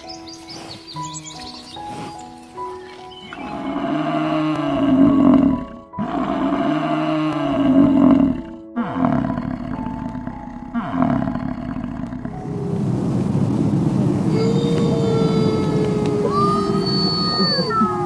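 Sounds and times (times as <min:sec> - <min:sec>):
bison bellowing: 0:03.4 - 0:13.2, 0:13.8 - 0:18.0.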